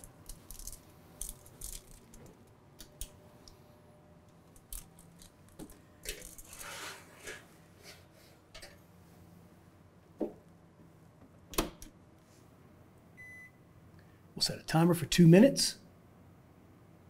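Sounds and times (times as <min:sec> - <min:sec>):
pan sliding on oven rack: 0:06.6 - 0:08.1.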